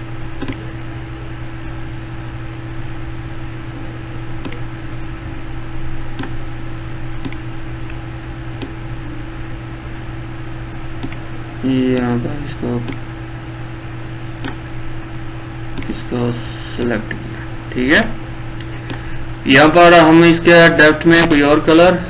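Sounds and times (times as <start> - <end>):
microphone hiss and hum: 0.0 - 22.0
computer mouse clicks: 0.4 - 0.6, 4.4 - 4.6, 6.2 - 6.4, 7.2 - 7.4, 11.0 - 11.2, 15.8 - 16.0.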